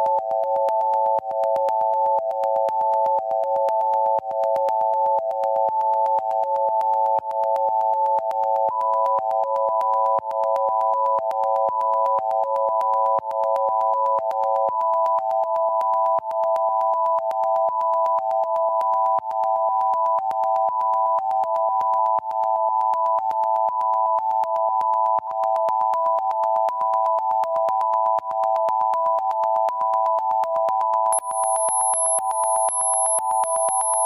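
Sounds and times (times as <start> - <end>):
pulsing sine-wave tones: 31.0 - 34.0
high thin tone: 31.1 - 34.0.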